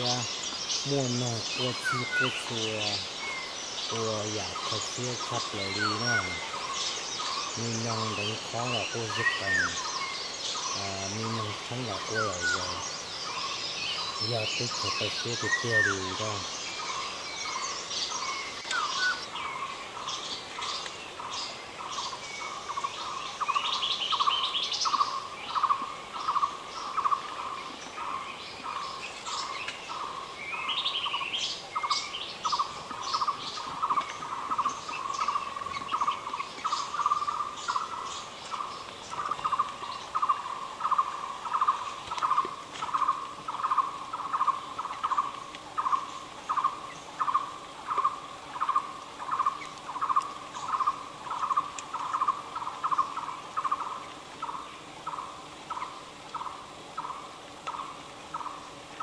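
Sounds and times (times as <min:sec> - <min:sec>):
bird chirps and trills: 0:00.0 - 0:59.0.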